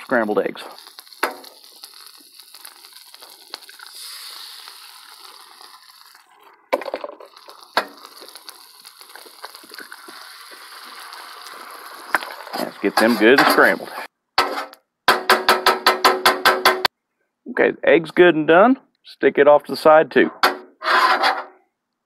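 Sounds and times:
eggs sizzling on a griddle: 0.0 - 14.1
eggshell cracking: 0.8 - 6.2, 6.8 - 12.5.

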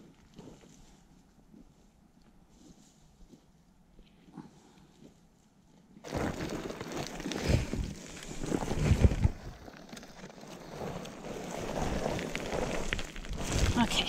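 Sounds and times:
loose rocks crunching and shifting: 6.0 - 14.0.

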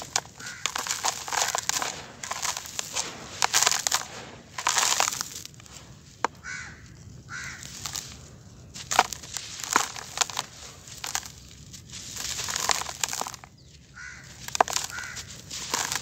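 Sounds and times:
sand pouring into plastic basin: 0.0 - 6.2
dirt crumbling in hands: 0.0 - 16.0
crow cawing: 0.4 - 1.6, 6.4 - 8.0, 13.9 - 15.3.

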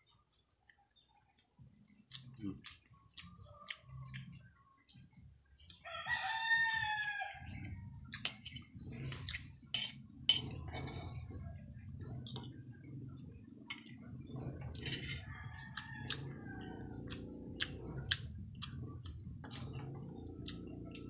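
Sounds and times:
rooster crowing: 5.8 - 7.6, 15.0 - 17.1
metal spoon scraping a wok: 8.2 - 11.4, 14.7 - 15.3.

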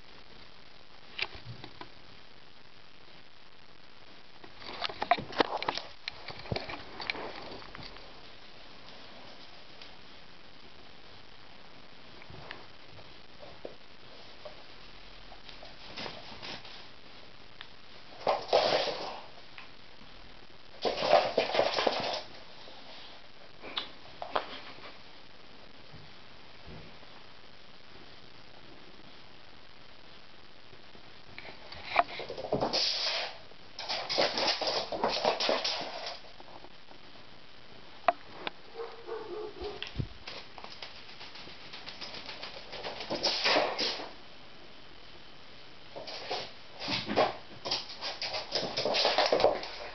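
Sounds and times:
cat scuffling and rustling: 14.2 - 17.3, 18.2 - 19.4, 46.0 - 49.9.

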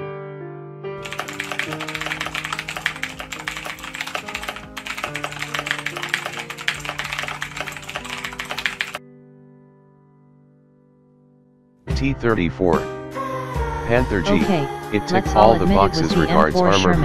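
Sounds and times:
rapid typing on a keyboard: 1.0 - 9.0
background music with held notes: 11.9 - 17.0.

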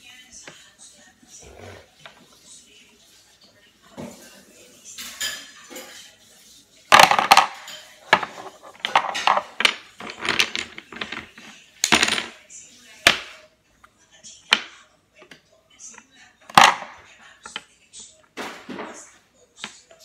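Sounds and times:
wooden blocks clattering on glass: 6.9 - 12.4.

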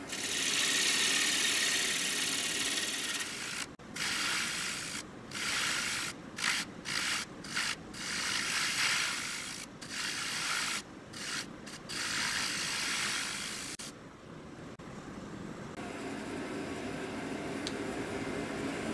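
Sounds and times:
lathe tool shaving wood: 0.1 - 3.7.

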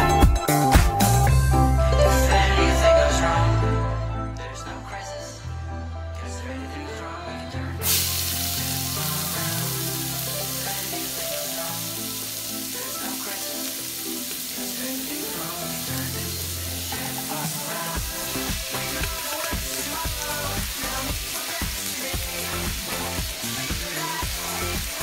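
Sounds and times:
background music: 0.0 - 25.0
peppers sizzling in hot oil: 7.8 - 25.0.

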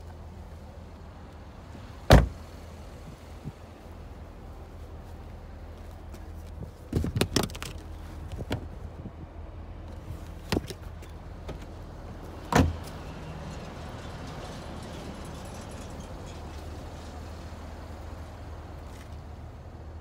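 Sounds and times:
car trunk lid slamming: 2.1 - 2.4, 12.5 - 12.8.

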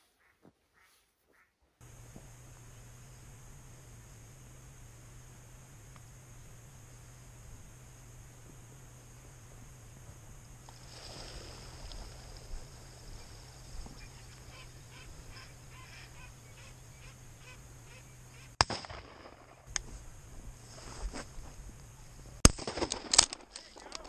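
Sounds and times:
ducks quacking faintly: 0.0 - 2.3, 10.7 - 18.6
loud sharp crack: 18.6 - 19.6.

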